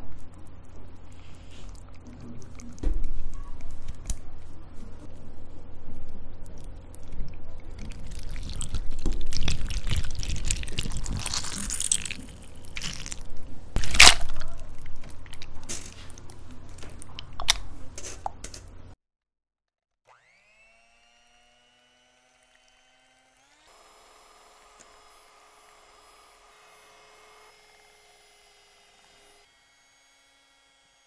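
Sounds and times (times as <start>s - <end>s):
wet squelching and dripping: 6.4s - 17.6s
electric hand mixer whine: 20.1s - 31.0s.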